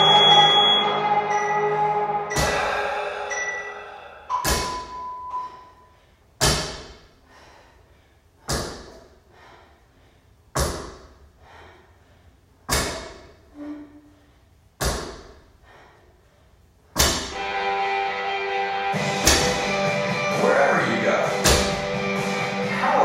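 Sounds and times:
barbell thuds on rubber floor: 4.4s - 5.0s, 6.4s - 7.1s, 8.5s - 9.0s, 12.7s - 13.3s, 14.8s - 15.4s, 17.0s - 17.4s, 19.2s - 19.8s, 21.4s - 21.9s.

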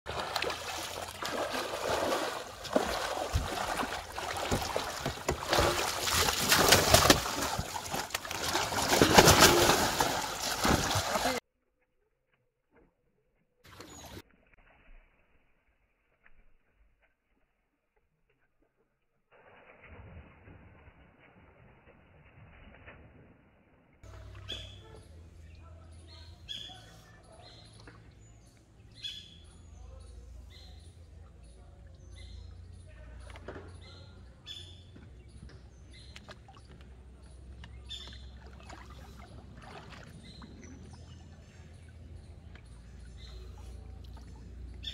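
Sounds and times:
fish thrashing in net: 0.1s - 11.4s
water splashing off net: 0.1s - 11.4s
birds chirping: 24.1s - 44.9s.

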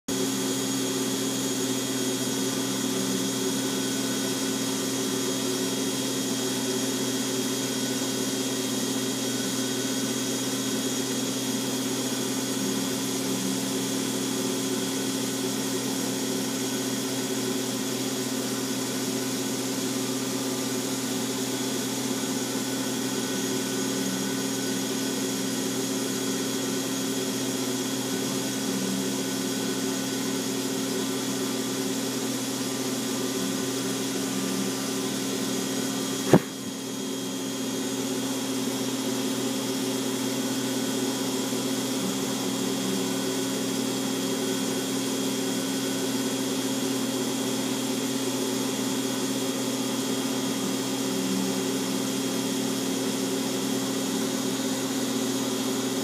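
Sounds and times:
milling machine spindle hum and whine: 0.1s - 56.0s
engraving cutter cutting steel: 20.3s - 38.0s.

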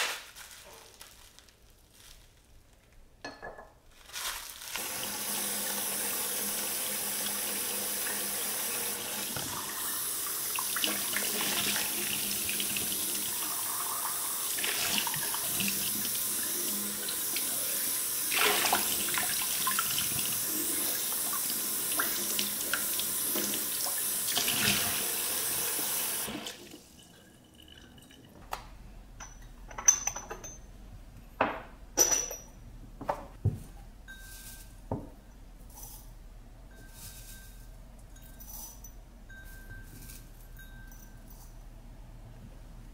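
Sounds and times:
ceramic jars and lids clinking: 29.2s - 30.7s, 31.5s - 32.6s.

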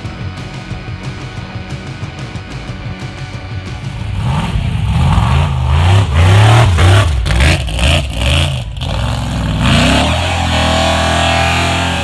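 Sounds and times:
car engine revving hard: 4.1s - 12.0s.

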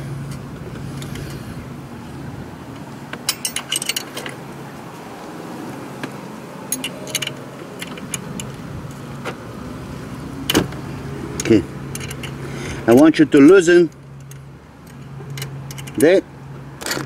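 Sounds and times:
wrench clinking on metal: 3.2s - 4.4s, 6.7s - 8.5s, 11.4s - 16.2s.

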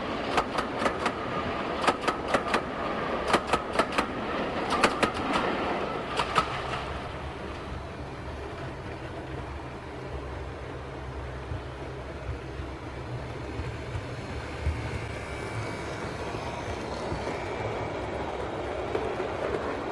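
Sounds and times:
model train wheels clicking: 0.0s - 7.8s, 11.4s - 19.9s
model train running hiss: 13.3s - 19.9s.

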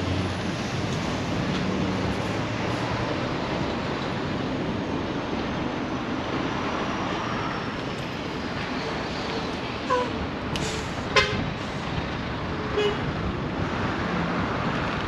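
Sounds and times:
street traffic noise: 0.0s - 15.0s
truck running alongside: 0.0s - 15.0s.

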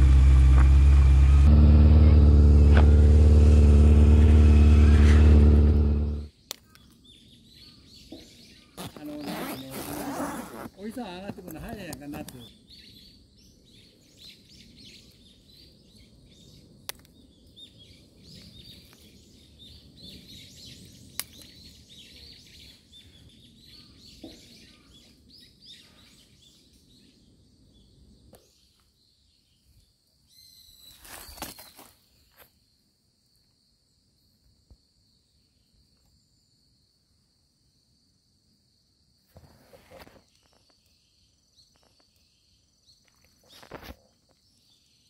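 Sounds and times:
low outdoor background rumble: 0.0s - 6.3s
small birds chirping: 4.6s - 32.4s, 40.2s - 45.0s.

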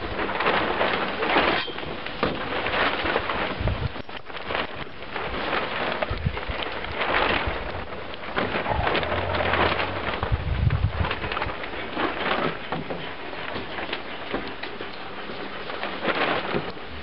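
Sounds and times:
puppies suckling and smacking: 2.4s - 17.0s
fur rustling: 2.6s - 13.5s
low rumble: 8.3s - 11.6s.

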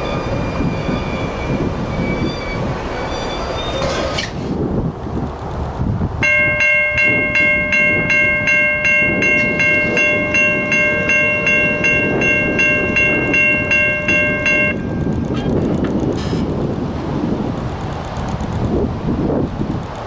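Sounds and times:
passing passenger train rumble: 0.0s - 20.0s
bell ringing: 6.2s - 15.1s.

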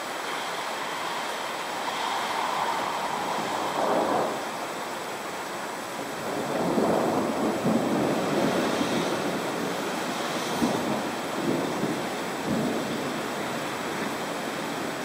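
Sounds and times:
steady rain: 0.0s - 15.0s
rolling thunder: 2.1s - 5.0s, 6.0s - 15.0s.

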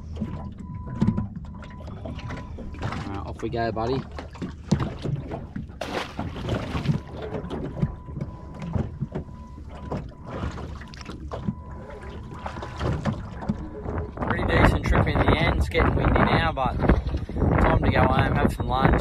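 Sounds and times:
knocks and splashes: 0.0s - 17.2s
water slapping boat hull: 0.0s - 19.0s
wind on microphone: 12.7s - 19.0s.

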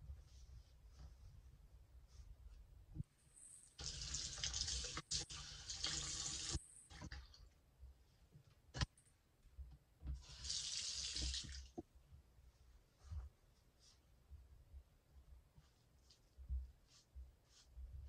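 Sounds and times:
faucet running into basin: 3.8s - 7.2s, 10.3s - 11.7s.

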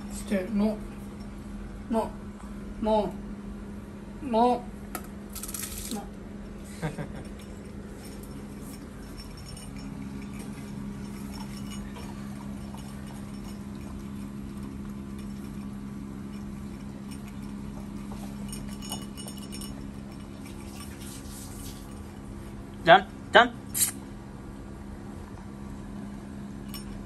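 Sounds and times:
steady low hum: 0.0s - 27.0s
puppy chewing and licking: 7.3s - 22.2s.

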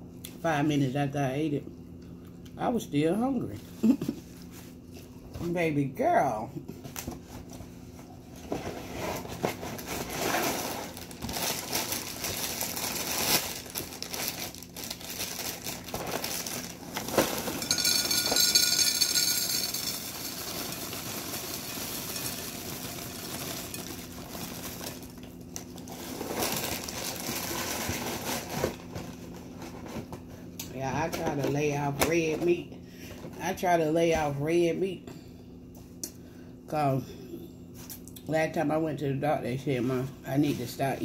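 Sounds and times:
plastic bag crinkling: 9.1s - 29.8s
dry cereal pouring into a bowl: 14.9s - 25.1s.

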